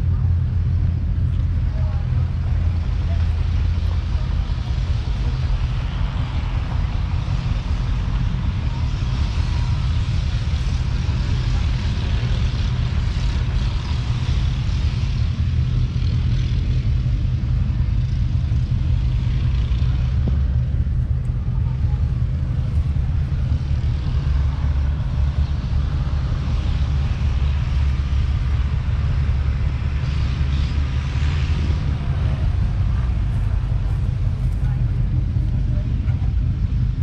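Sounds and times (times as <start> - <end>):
diesel engine idling: 0.0 - 37.0.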